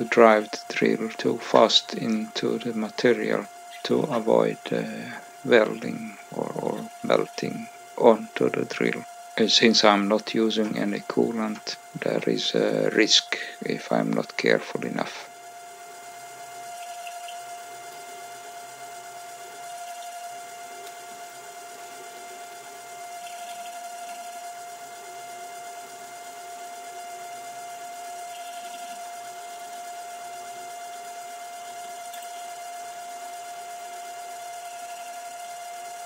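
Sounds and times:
faint metal cutting sounds: 0.0s - 36.0s
lathe whine: 0.0s - 36.0s.

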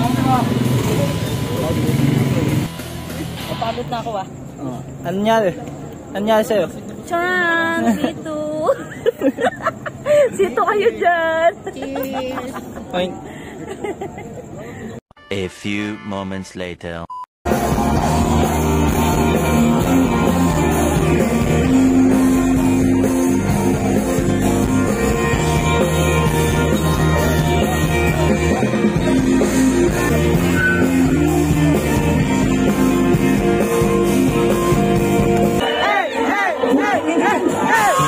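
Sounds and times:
loud rock music with singer: 17.5s - 35.6s.

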